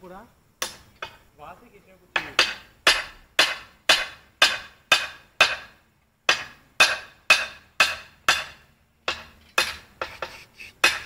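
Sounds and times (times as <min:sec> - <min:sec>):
sharp metallic clanks: 0:02.2 - 0:11.0.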